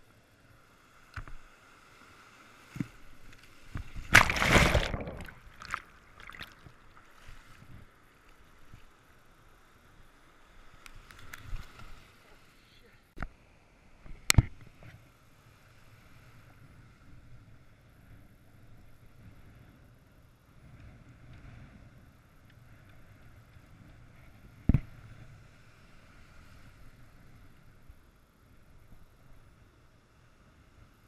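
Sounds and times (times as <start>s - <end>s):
surf breaking and washing: 0.8s - 8.0s.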